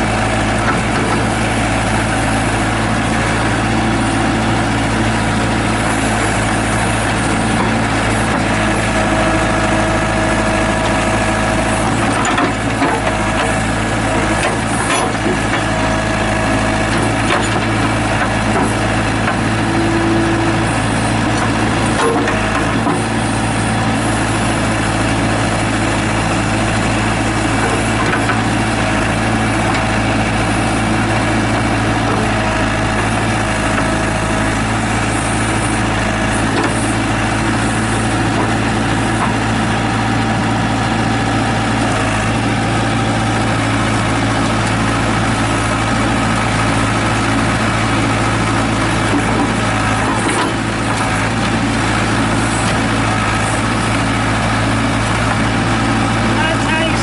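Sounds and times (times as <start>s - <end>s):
backhoe diesel engine running: 0.0s - 57.0s.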